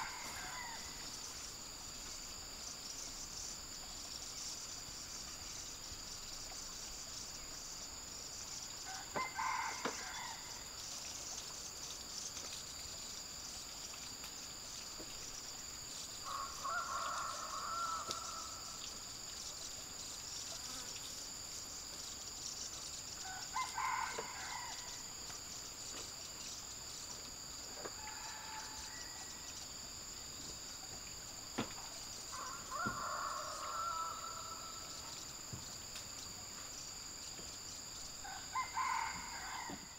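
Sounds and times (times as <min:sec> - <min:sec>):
rooster crowing: 0:00.0 - 0:01.0, 0:08.9 - 0:10.6, 0:16.2 - 0:18.7, 0:23.2 - 0:25.0, 0:28.0 - 0:29.4, 0:32.3 - 0:34.8, 0:38.2 - 0:39.9
insects shrilling: 0:00.0 - 0:01.6, 0:30.7 - 0:36.4.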